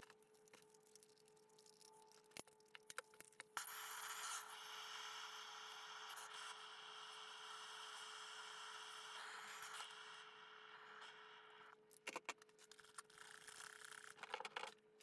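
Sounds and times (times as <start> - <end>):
gas torch flame hissing: 3.6 - 11.7.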